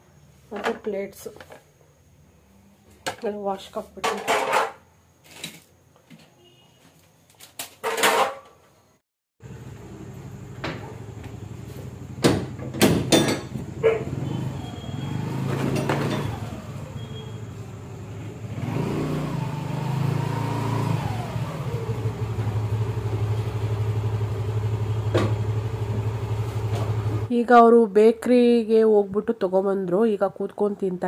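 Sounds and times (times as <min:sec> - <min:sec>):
scooter engine idling: 0:21.0 - 0:27.3.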